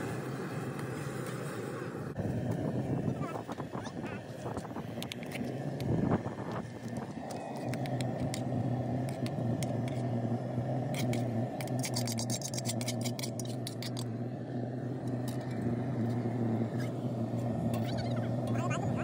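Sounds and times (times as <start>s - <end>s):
steady low hum: 0.0s - 19.0s
spoon scraping a pot: 10.9s - 14.1s.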